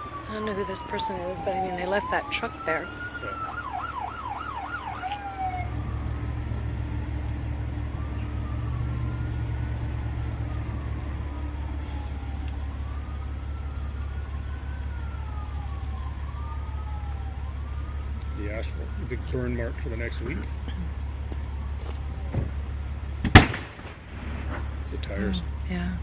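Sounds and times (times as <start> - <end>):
emergency vehicle siren: 0.0 - 25.8
steady low rumble: 4.9 - 26.0.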